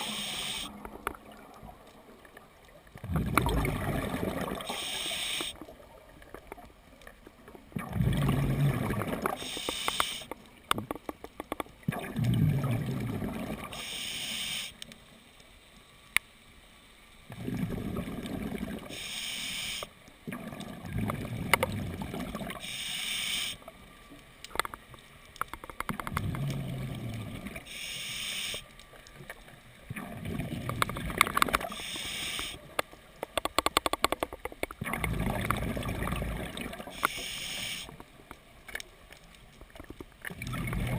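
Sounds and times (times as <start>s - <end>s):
regulator inhale hiss: 0.0s - 0.7s, 4.6s - 5.6s, 9.4s - 10.3s, 13.7s - 14.8s, 18.9s - 20.0s, 22.6s - 23.6s, 27.6s - 28.7s, 31.6s - 32.6s, 36.9s - 38.0s
gurgling exhaust bubbles: 3.0s - 4.6s, 7.8s - 9.4s, 34.8s - 36.8s, 40.4s - 40.9s.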